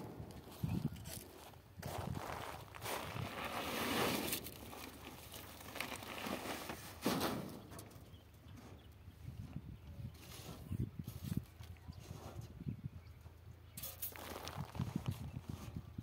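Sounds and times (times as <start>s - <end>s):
plastic sacks rustling: 2.5s - 7.3s.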